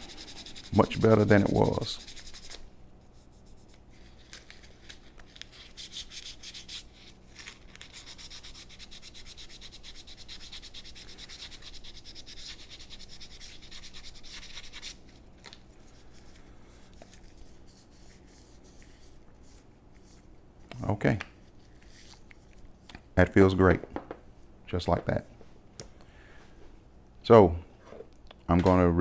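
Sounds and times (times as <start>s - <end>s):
sandpaper rubbing on wood: 0.0s - 2.6s, 7.8s - 15.0s.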